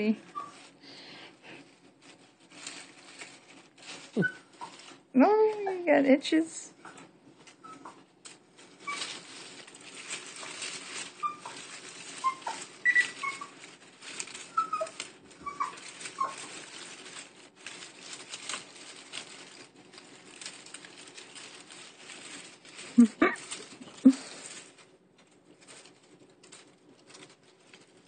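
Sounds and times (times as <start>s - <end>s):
leaves and bedding rustling: 0.0s - 28.0s
squirrel squeaking: 0.3s - 0.6s, 4.1s - 4.8s, 7.6s - 8.0s, 11.1s - 13.6s, 14.4s - 16.5s.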